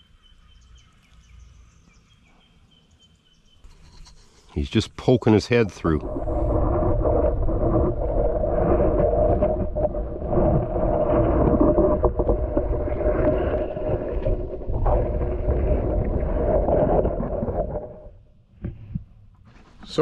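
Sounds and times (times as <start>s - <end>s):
muffled underwater rumble: 5.1s - 19.4s.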